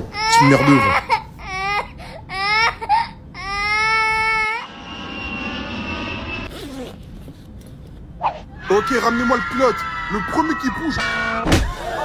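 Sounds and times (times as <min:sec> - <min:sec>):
baby crying: 0:00.1 - 0:04.7
thin high whine: 0:04.5 - 0:06.9.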